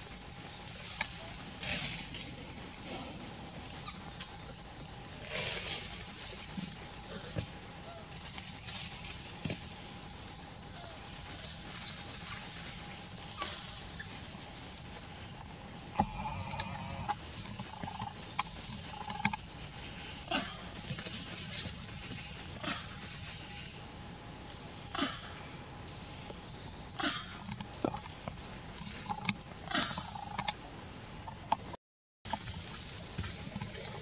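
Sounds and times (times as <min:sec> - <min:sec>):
insects trilling: 0:00.0 - 0:34.0.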